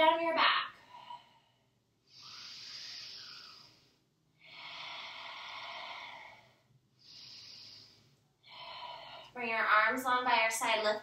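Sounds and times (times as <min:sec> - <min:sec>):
woman breathing slowly: 0:00.7 - 0:09.4.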